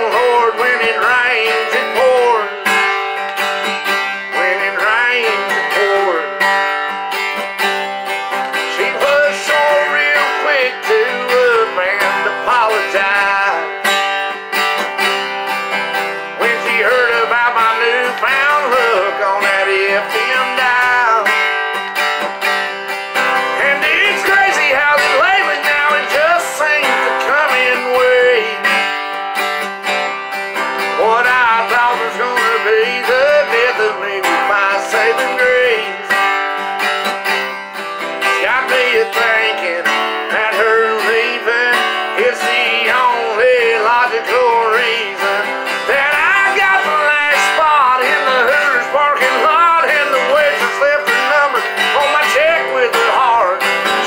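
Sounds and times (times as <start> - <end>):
acoustic guitar strummed: 0.0 - 54.0.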